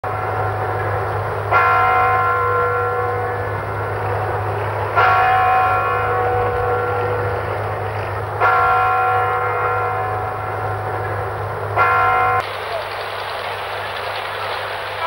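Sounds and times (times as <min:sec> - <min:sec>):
steady low hum: 0:12.4 - 0:15.0.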